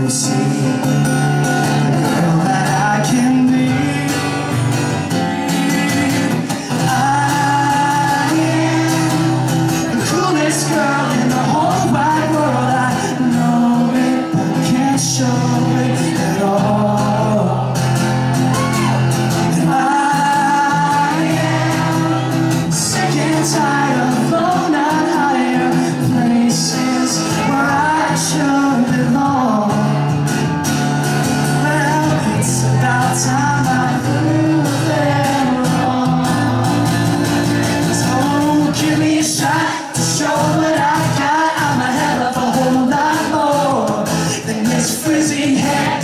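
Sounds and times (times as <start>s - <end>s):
man singing into microphone: 0.0s - 17.9s, 18.5s - 30.2s, 31.4s - 46.0s
acoustic guitar strumming: 0.0s - 46.0s.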